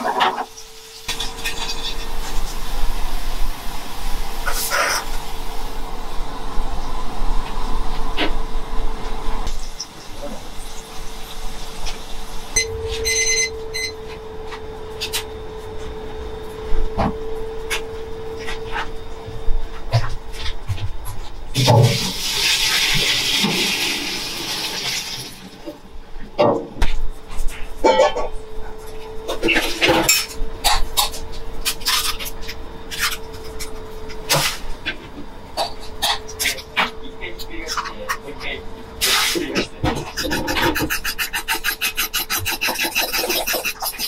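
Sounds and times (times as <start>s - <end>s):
steady hum: 0.0s - 44.0s
short electronic beeps: 12.6s - 14.0s.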